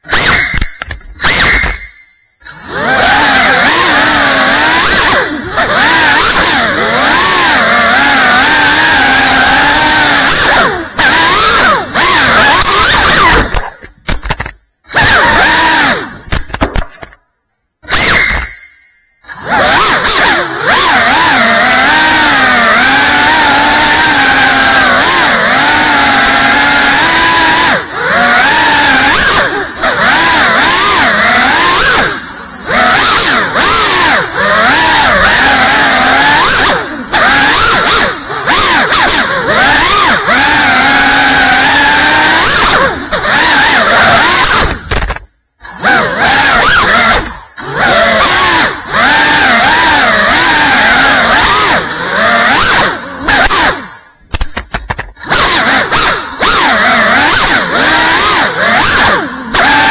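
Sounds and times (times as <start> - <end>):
drone propellers whining: 0.0 - 17.2, 17.8 - 59.9
short blips: 0.1 - 3.2, 17.8 - 20.9.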